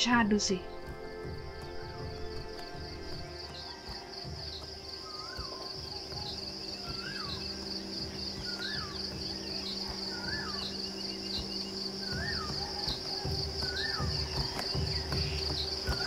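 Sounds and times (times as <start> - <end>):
chorus of insects: 0.0 - 16.0
faint bird chirps: 1.6 - 16.0
bird whistled call: 4.5 - 16.0.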